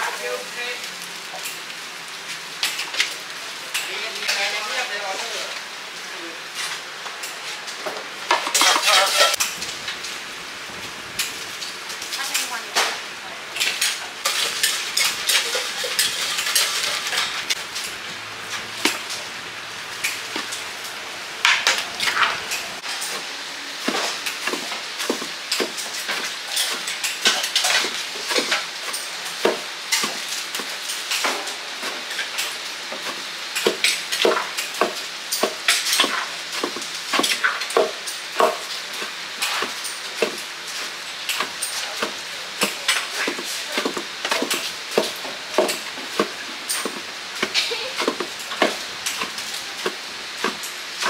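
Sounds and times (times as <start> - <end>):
sizzling hiss: 0.0 - 51.0
utensils clicking and knocking: 13.6 - 19.2, 41.3 - 51.0.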